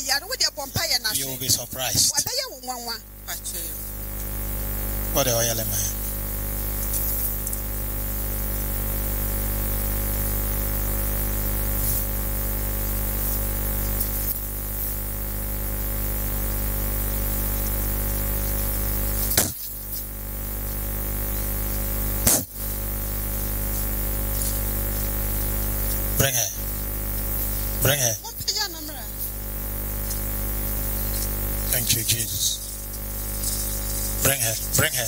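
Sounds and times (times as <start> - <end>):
electrical hum from microphone system: 0.0 - 35.0.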